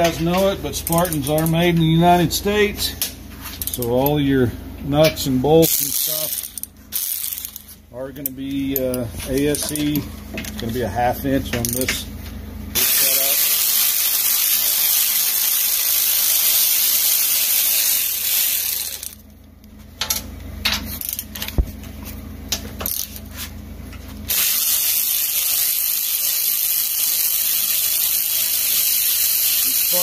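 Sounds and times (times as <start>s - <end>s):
power ratchet running: 0.0s - 1.9s, 5.4s - 7.8s, 12.7s - 19.3s, 20.9s - 21.6s, 22.8s - 23.2s, 24.3s - 30.0s.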